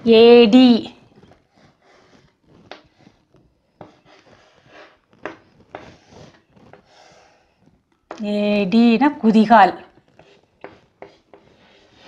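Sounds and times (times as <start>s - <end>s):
chalk scraping on blackboard: 1.1s - 3.2s, 3.8s - 7.6s, 10.1s - 12.0s
chalk tapping on board: 10.2s - 12.0s.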